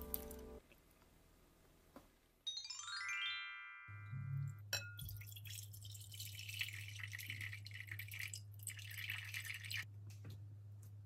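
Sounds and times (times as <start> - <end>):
water pouring into glass bowl: 4.9 - 9.9.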